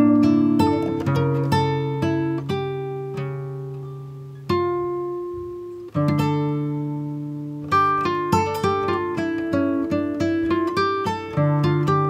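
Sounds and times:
plucked string instrument: 0.0s - 12.0s.

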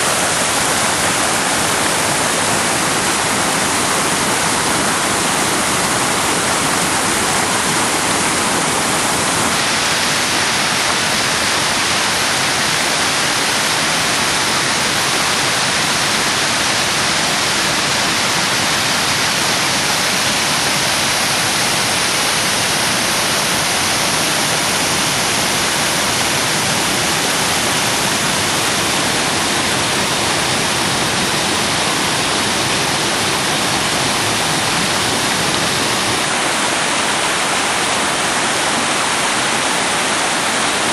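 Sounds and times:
waterfall rushing over rocks: 0.0s - 40.9s.

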